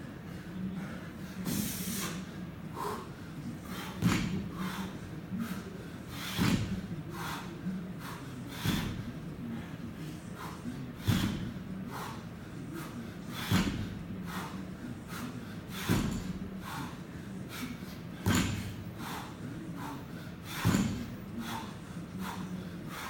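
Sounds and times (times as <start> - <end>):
heavy breathing: 0.0 - 23.0
barbell plates thudding on floor mat: 4.0 - 4.4, 13.5 - 13.9, 15.8 - 16.4, 18.2 - 18.8, 20.6 - 21.2.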